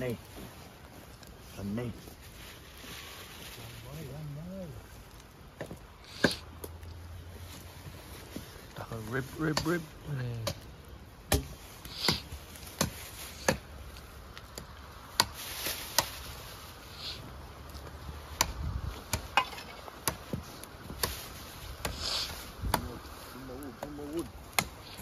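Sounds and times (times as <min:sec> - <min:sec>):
plastic bag rustling: 0:00.2 - 0:05.4.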